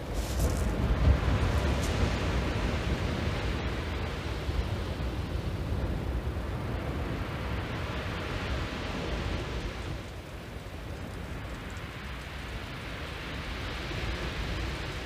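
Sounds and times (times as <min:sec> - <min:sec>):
surf washing on shingle: 0:00.0 - 0:02.9
wind buffeting microphone: 0:00.0 - 0:15.0.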